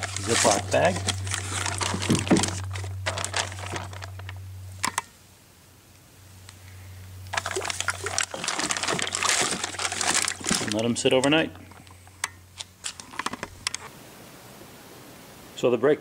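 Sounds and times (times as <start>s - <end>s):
plastic bag crinkling: 0.0s - 4.4s, 7.3s - 11.9s.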